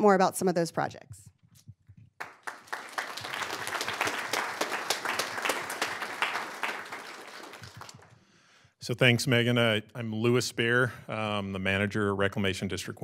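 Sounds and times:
audience applauding: 2.2s - 8.2s.

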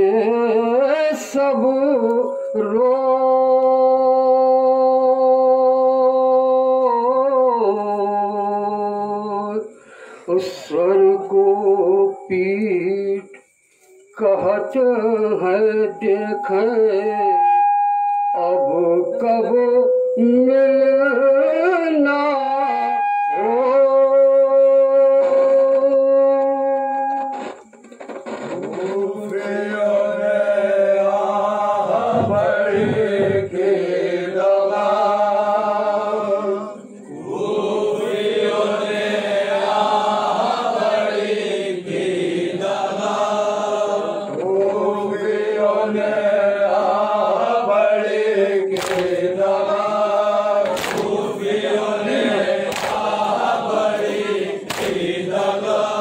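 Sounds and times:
men chanting in unison: 28.8s - 56.0s
chest-beating slaps: 48.7s - 49.2s, 50.6s - 51.2s, 52.6s - 53.4s, 54.6s - 55.2s.

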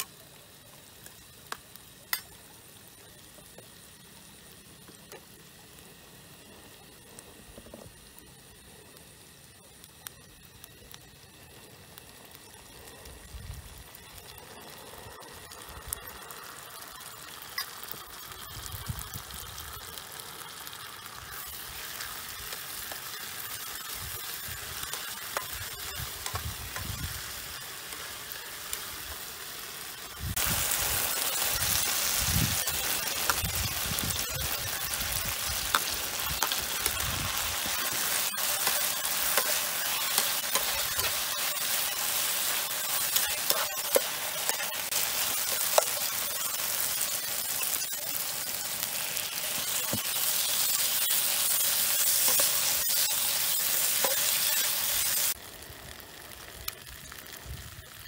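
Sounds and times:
food sizzling in a frying pan: 0.0s - 58.0s.

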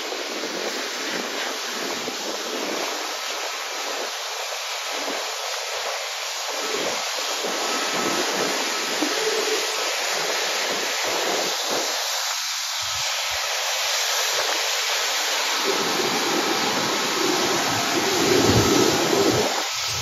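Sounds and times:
jet engines hissing: 14.3s - 20.0s.

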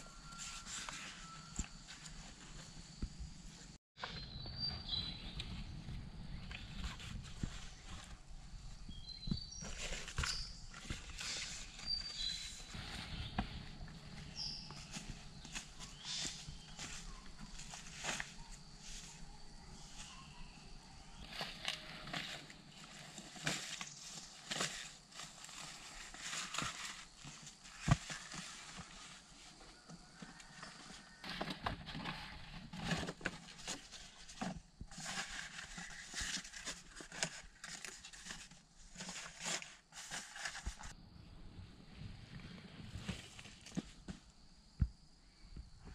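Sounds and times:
leaves rustling and crackling: 4.9s - 40.9s.

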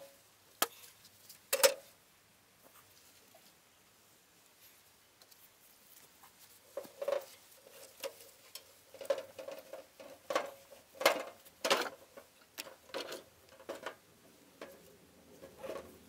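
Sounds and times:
wheelbarrow knocks and rattles: 6.8s - 14.0s, 15.4s - 16.0s.

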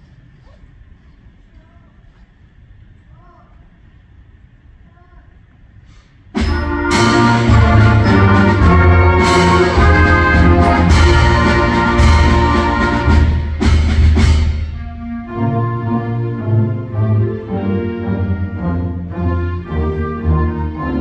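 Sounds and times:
sharp percussion hits: 6.4s - 15.4s
concert band playing chords: 6.4s - 21.0s.

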